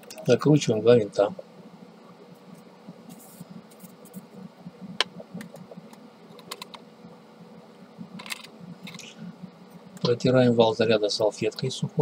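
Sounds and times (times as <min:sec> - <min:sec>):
plastic parts clicking and tapping: 0:08.2 - 0:09.0.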